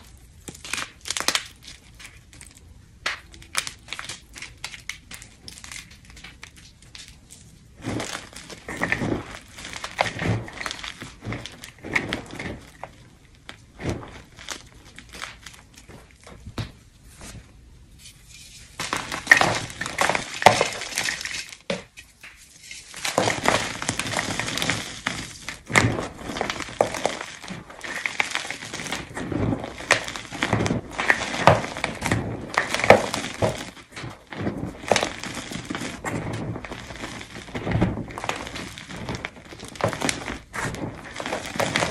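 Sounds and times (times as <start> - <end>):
chalk crunching: 18.0 - 41.9.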